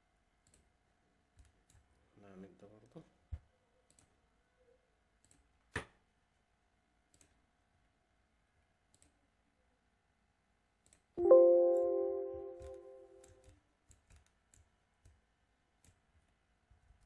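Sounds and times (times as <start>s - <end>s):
computer mouse clicks: 0.4s - 0.7s, 3.8s - 4.2s, 5.2s - 5.5s, 7.1s - 7.4s, 8.9s - 9.2s, 10.8s - 11.1s, 12.6s - 15.2s, 15.8s - 16.2s
bell-like chime ringing: 11.2s - 13.2s.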